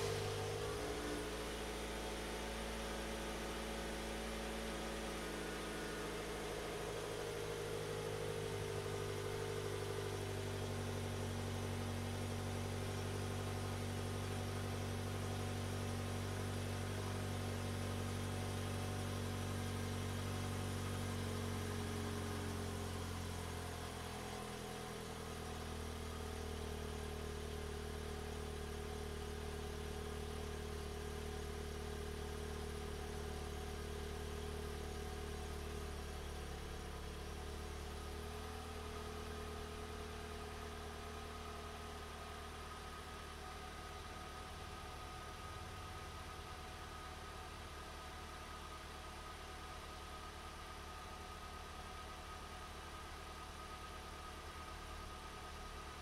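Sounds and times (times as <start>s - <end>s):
car engine idling: 0.0s - 56.0s.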